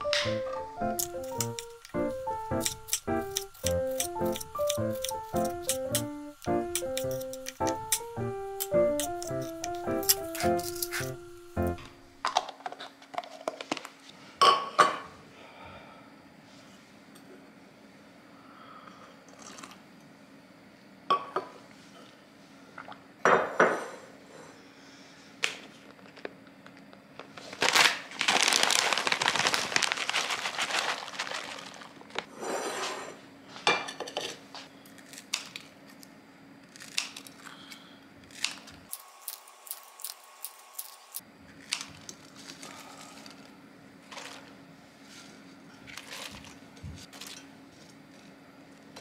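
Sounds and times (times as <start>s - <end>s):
bag rustling and crinkling: 27.2s - 32.3s.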